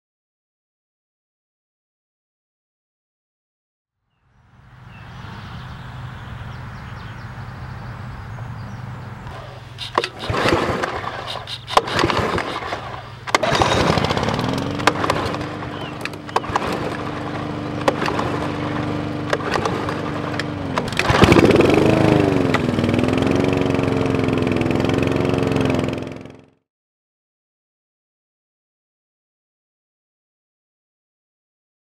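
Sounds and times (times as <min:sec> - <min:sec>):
lawn mower engine running: 0:04.5 - 0:26.6
lawn mower pull start strokes: 0:09.2 - 0:26.5.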